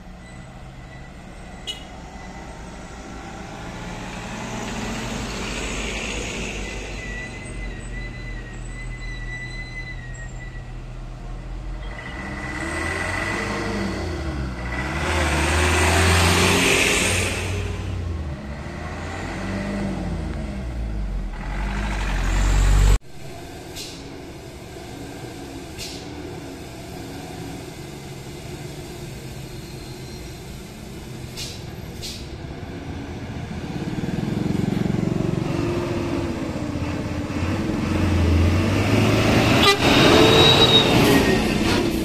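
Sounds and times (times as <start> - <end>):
truck diesel engines labouring: 0.0 - 42.0
truck horn toot: 1.6 - 2.0, 39.5 - 41.6.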